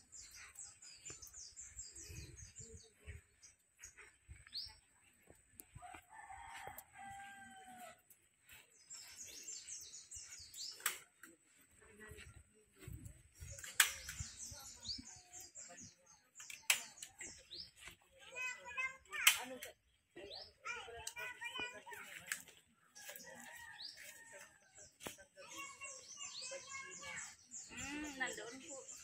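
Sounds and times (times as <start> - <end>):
small birds chirping: 0.0 - 29.0
rooster crowing: 5.9 - 7.9
sharp click: 13.6 - 14.2.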